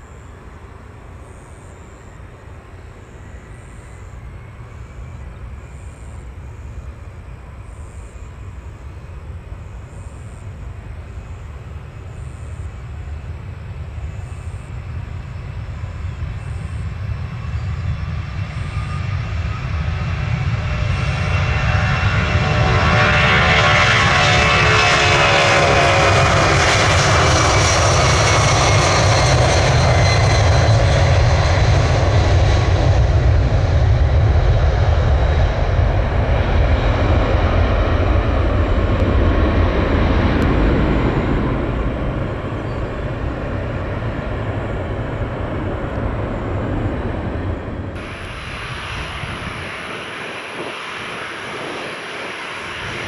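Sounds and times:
jet engine whine: 0.0s - 53.0s
heavy jet rumble: 2.1s - 53.0s.

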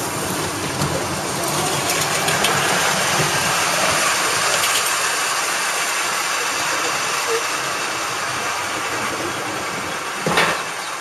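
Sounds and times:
kayak rumbling down metal rollers: 0.7s - 5.1s.

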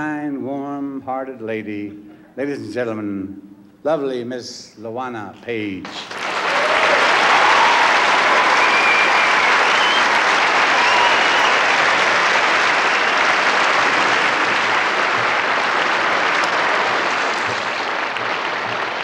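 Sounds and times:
audience applauding: 5.9s - 19.0s.

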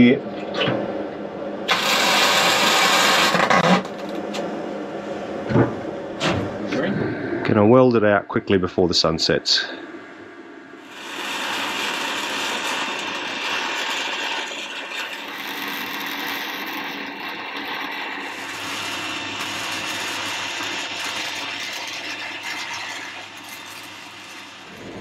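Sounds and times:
arc welding sizzle: 1.6s - 4.4s, 10.8s - 25.0s.

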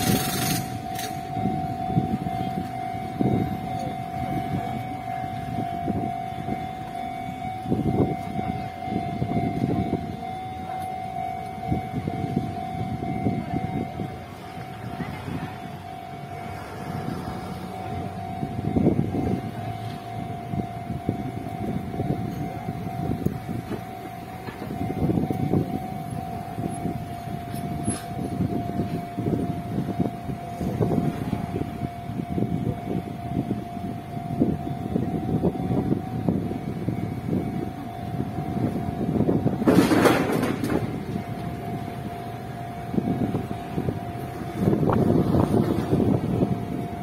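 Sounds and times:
road traffic passing: 0.0s - 47.0s
vehicle passing: 14.3s - 19.9s.

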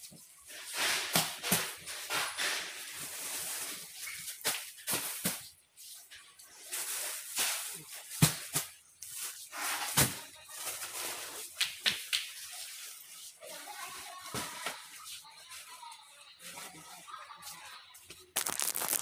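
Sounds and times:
plastic bags rustling: 0.2s - 11.6s, 18.4s - 19.0s.

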